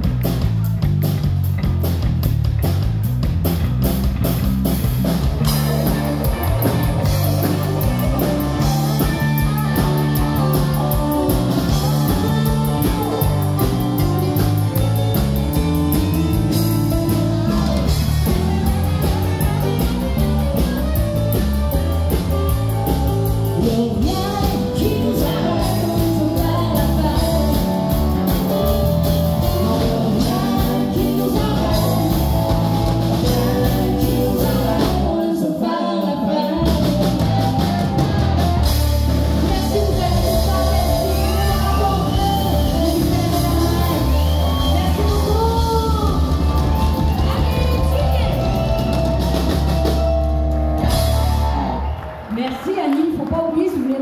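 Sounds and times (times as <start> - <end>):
country band with guitar and drums: 0.0 - 52.3
woman singing: 7.2 - 14.4, 22.5 - 28.5, 29.3 - 37.8, 39.3 - 48.9.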